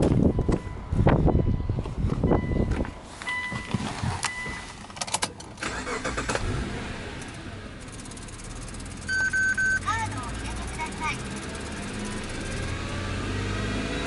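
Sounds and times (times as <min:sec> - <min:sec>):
car engine starting and idling: 0:01.4 - 0:14.0
keys clicking in ignition: 0:04.2 - 0:09.8
electronic chime: 0:09.0 - 0:09.8.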